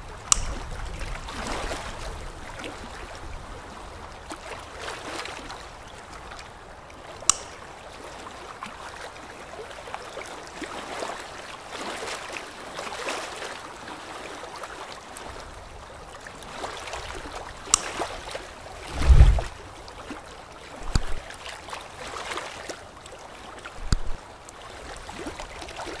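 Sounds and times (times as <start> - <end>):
dull low thump: 18.9 - 19.6.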